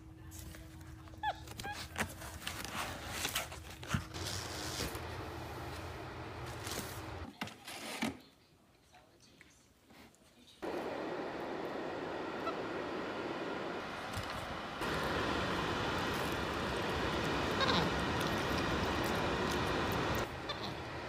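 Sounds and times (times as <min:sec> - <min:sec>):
cardboard and plastic rustling: 0:00.2 - 0:08.3.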